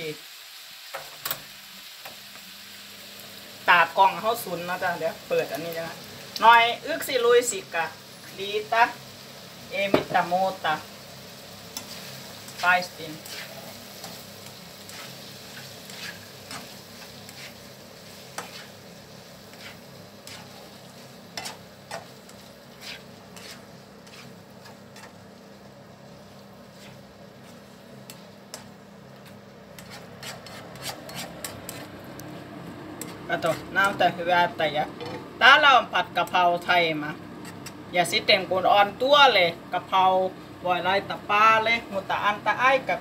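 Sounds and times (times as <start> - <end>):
meat and vegetables sizzling in wok: 0.0 - 43.0
spatula stirring and scraping: 11.6 - 32.3, 32.9 - 34.0, 37.4 - 37.8.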